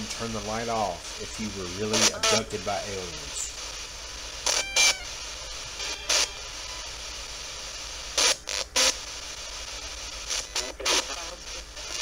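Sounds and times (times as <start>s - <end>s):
choppy radio bursts: 0.0s - 12.0s
static hiss: 0.0s - 12.0s.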